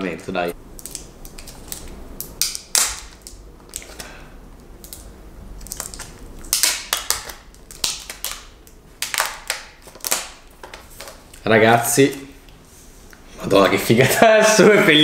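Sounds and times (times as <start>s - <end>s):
plastic film crackling: 0.7s - 11.4s.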